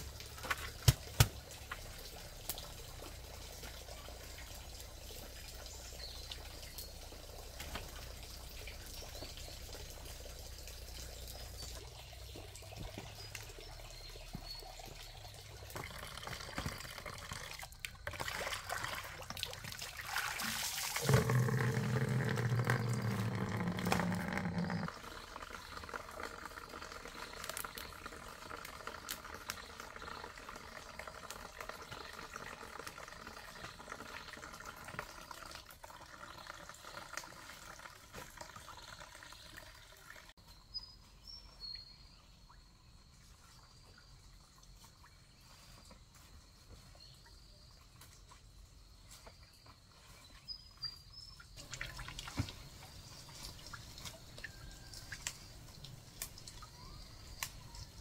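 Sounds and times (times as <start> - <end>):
water pouring into plastic basin: 15.2 - 40.3, 51.6 - 57.0.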